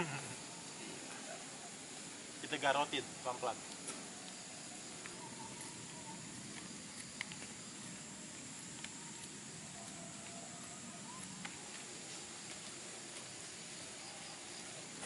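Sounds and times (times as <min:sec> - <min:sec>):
steady hiss: 0:00.0 - 0:15.0
faint chirps: 0:03.2 - 0:07.3, 0:08.8 - 0:11.7.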